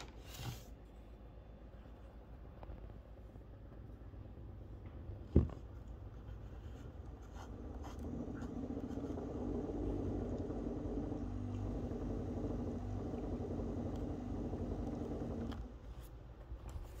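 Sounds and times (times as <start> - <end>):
knock: 5.3 - 5.6
aquarium pump humming: 6.1 - 16.1.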